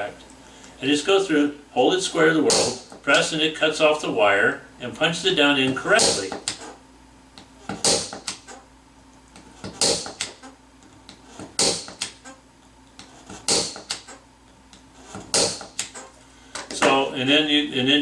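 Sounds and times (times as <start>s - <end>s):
punch-down tool snapping: 7.8s - 8.5s, 9.7s - 10.4s, 13.4s - 14.2s.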